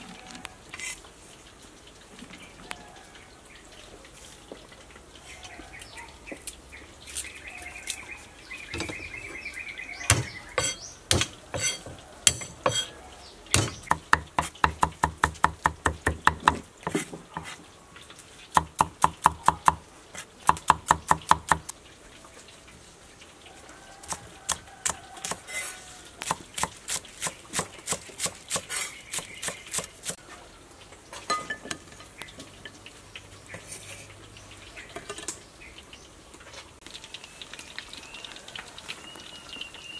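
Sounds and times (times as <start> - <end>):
cleaver chopping on wooden block: 10.1 - 12.9, 13.5 - 17.1, 18.6 - 19.8, 20.4 - 21.7.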